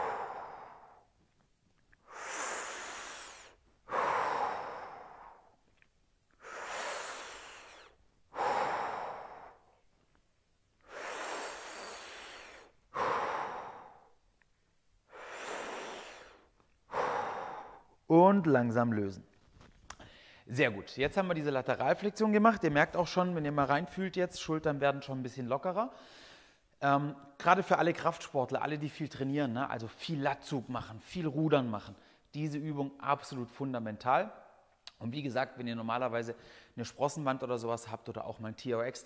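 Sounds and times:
man breathing deeply: 0:00.0 - 0:01.4, 0:02.0 - 0:10.2, 0:10.8 - 0:14.3, 0:15.0 - 0:18.1, 0:20.0 - 0:20.5, 0:25.9 - 0:26.7.

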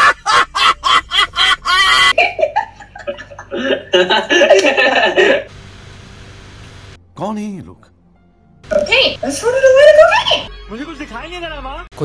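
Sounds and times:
people laughing loudly: 0:00.0 - 0:05.5.

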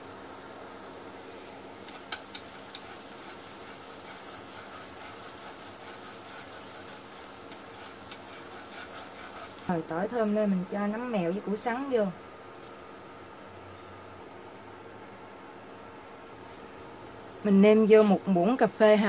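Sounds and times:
garlic sizzling in hot oil: 0:00.0 - 0:10.4.

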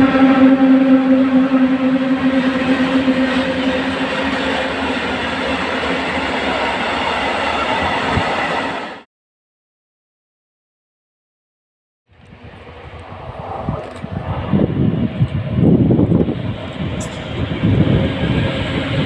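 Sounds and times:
locomotive electric hum: 0:00.0 - 0:06.8
freight wagons rumbling on rails: 0:00.0 - 0:08.8, 0:12.1 - 0:19.0.

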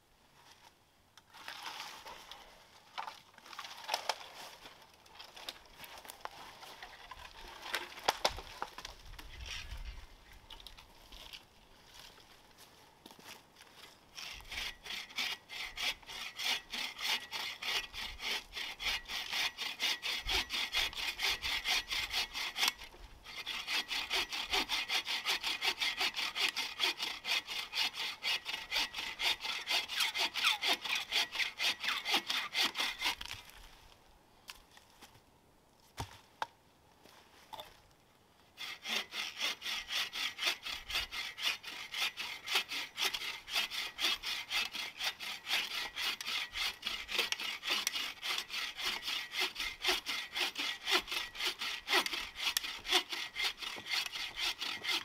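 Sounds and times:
bow saw cutting through log: 0:14.1 - 0:33.5, 0:38.6 - 0:55.0.

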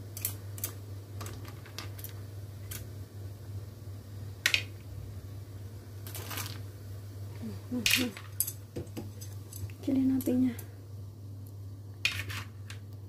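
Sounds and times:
steady low hum: 0:00.0 - 0:13.0
clam shells clicking in pan: 0:00.1 - 0:02.8, 0:04.4 - 0:04.7.

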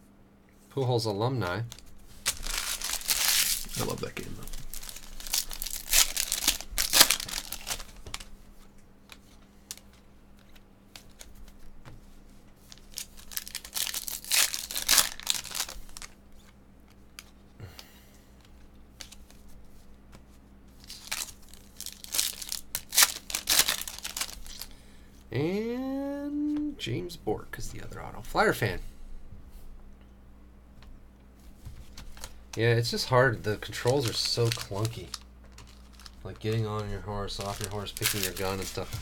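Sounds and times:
foil wrapper crinkling and tearing: 0:01.6 - 0:09.9, 0:12.6 - 0:16.5, 0:20.7 - 0:24.7, 0:31.9 - 0:39.0
card handling: 0:01.7 - 0:12.0, 0:12.6 - 0:17.4, 0:18.4 - 0:24.7, 0:31.5 - 0:39.0.

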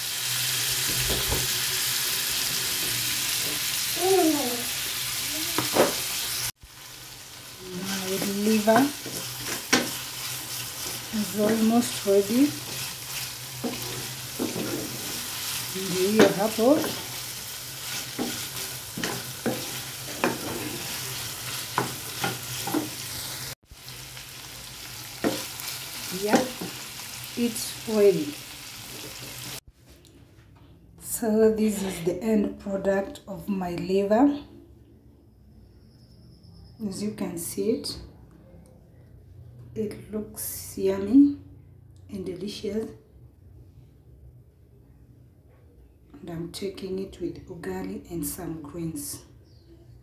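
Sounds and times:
food sizzling in a pan: 0:00.0 - 0:29.7.

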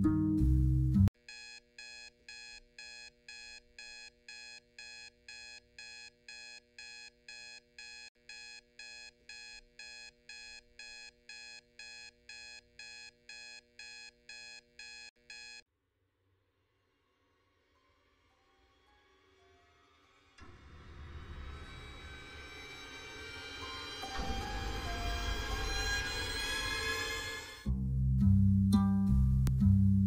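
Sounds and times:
alarm clock beeping: 0:01.3 - 0:15.6.

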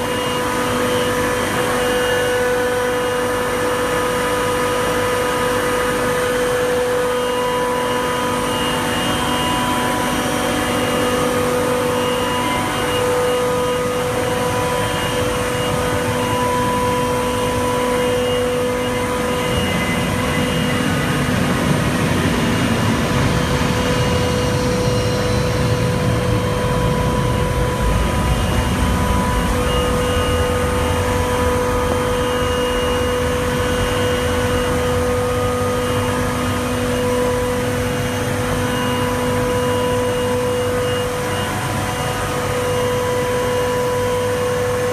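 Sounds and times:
refrigeration machinery hum: 0:00.0 - 0:44.9
heavy low rumble: 0:20.8 - 0:36.1.

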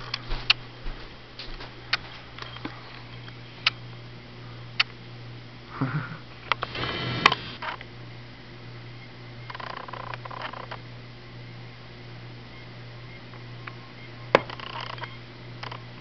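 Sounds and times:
steady low hum: 0:00.0 - 0:16.0
zoom motor whir: 0:06.6 - 0:07.6.

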